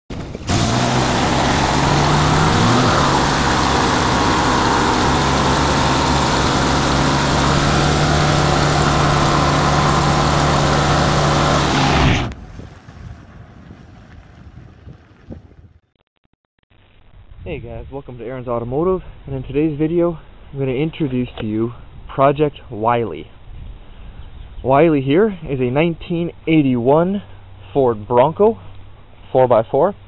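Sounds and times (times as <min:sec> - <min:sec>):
tyres spinning on asphalt: 0:00.1 - 0:15.8
truck engine revving high: 0:00.2 - 0:12.4.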